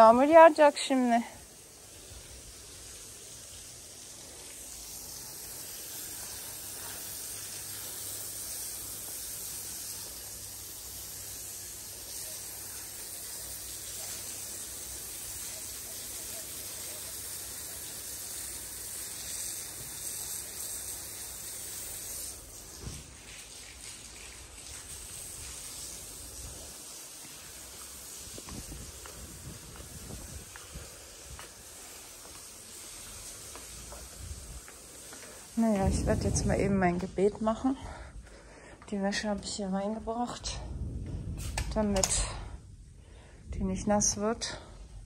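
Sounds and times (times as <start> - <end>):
storm hiss: 0.0 - 23.8, 24.5 - 45.0
low rumble: 35.6 - 38.6, 39.4 - 44.2.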